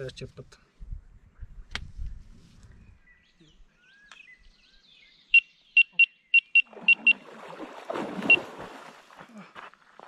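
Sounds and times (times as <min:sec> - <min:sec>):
bite alarm beeps: 0:05.3 - 0:07.2.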